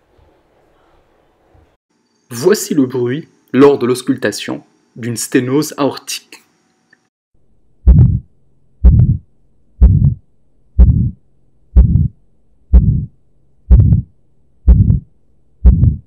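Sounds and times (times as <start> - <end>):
heart murmur: 7.9 - 9.2, 9.8 - 10.2, 10.8 - 11.2, 11.8 - 13.1, 13.7 - 14.1, 14.7 - 16.0
heartbeat through stethoscope: 7.9 - 10.2, 10.8 - 11.2, 11.8 - 14.1, 14.7 - 16.0.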